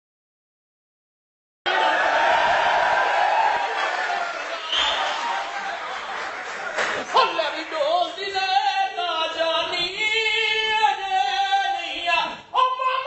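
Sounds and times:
audience noise: 0:01.7 - 0:08.4.

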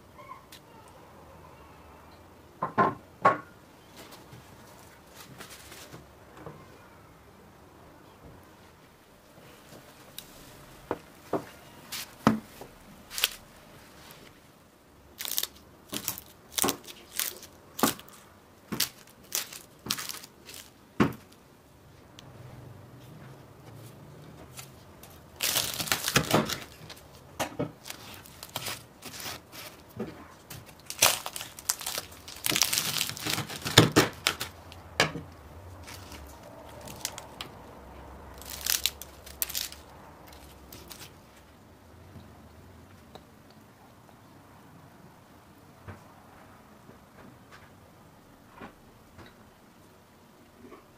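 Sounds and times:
pastry crust cracking and tearing: 0:13.1 - 0:13.5, 0:15.1 - 0:20.8, 0:25.0 - 0:34.8, 0:35.8 - 0:37.6, 0:38.3 - 0:41.2.

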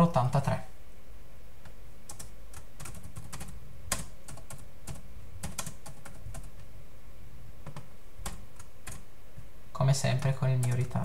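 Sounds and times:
typing on computer keyboard: 0:02.1 - 0:06.6, 0:07.6 - 0:09.0, 0:10.1 - 0:11.0.

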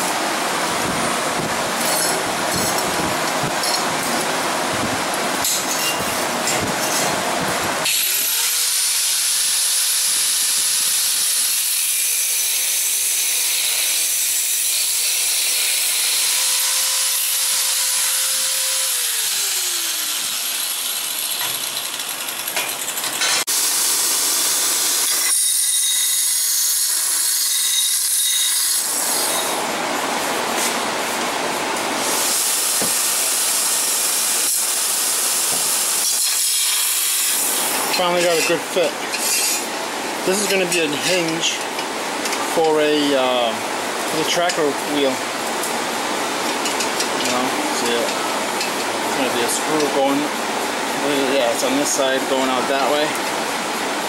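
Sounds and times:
angle grinder grinding steel: 0:07.8 - 0:29.6, 0:36.0 - 0:41.7
belt grinder sanding steel: 0:07.9 - 0:29.5, 0:32.2 - 0:39.7.

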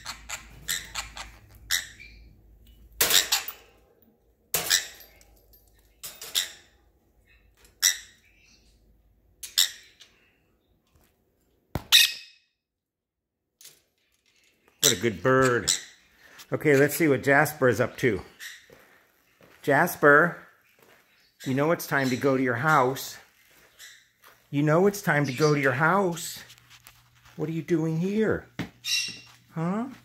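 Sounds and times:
parrot squawking: 0:00.0 - 0:02.3, 0:11.9 - 0:12.2, 0:28.8 - 0:29.4.

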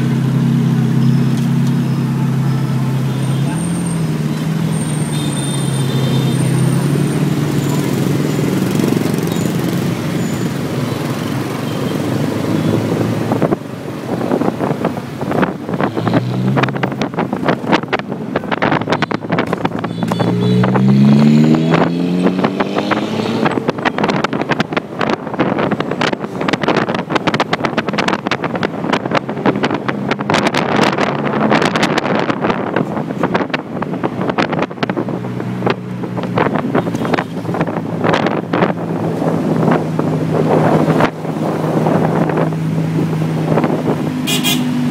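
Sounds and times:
street traffic: 0:00.0 - 0:44.9
vehicle engine revving: 0:00.0 - 0:44.9
wind buffeting microphone: 0:12.3 - 0:20.0, 0:20.6 - 0:44.2.

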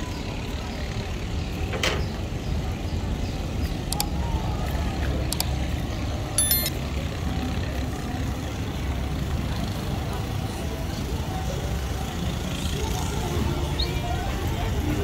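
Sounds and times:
street traffic rumble: 0:00.0 - 0:15.0
high-pitched ringing tone: 0:06.4 - 0:06.8.

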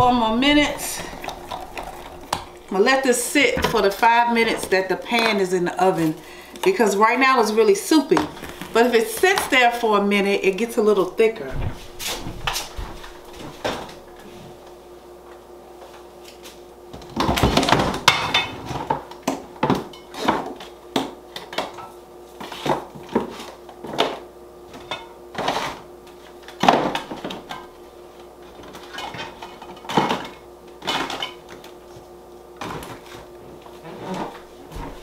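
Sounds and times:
steady hum: 0:00.0 - 0:19.2, 0:31.7 - 0:35.0.

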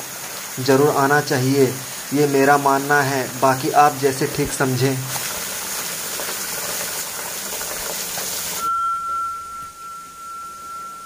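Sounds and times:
water splashing onto stones: 0:00.0 - 0:08.7
steady high tone: 0:08.6 - 0:11.0.

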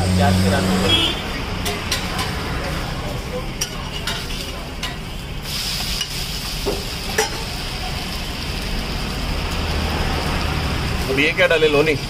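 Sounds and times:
food sizzling on a griddle: 0:00.0 - 0:12.0
metal spatula scraping and tapping: 0:01.6 - 0:02.4, 0:03.6 - 0:05.1.

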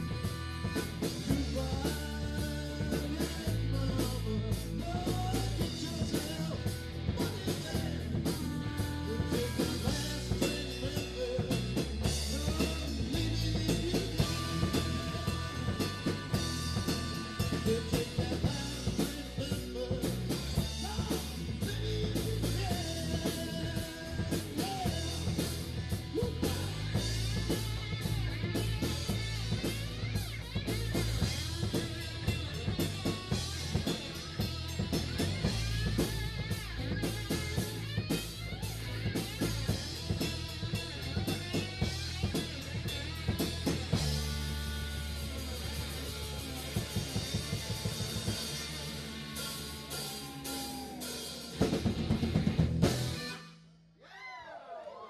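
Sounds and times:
lead singer: 0:00.0 - 0:46.0
live rock band playing: 0:00.0 - 0:53.6.

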